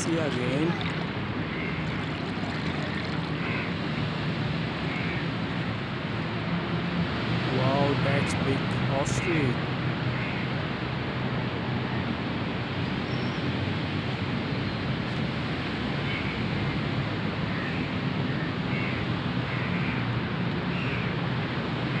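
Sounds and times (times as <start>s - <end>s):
river flowing: 0.0s - 6.3s.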